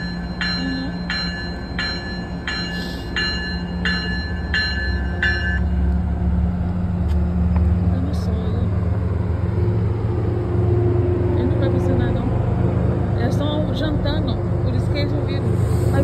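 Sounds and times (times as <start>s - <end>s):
train bell ringing: 0.0s - 6.0s
diesel locomotive rumble: 0.0s - 16.0s.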